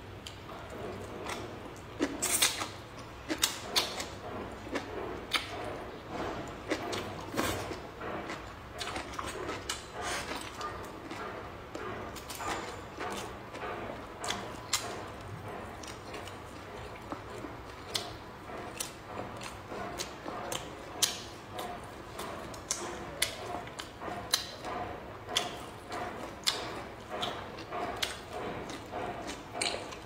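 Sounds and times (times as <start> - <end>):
wet chewing: 0.2 - 30.0
mouth smacks and clicks: 0.3 - 30.0.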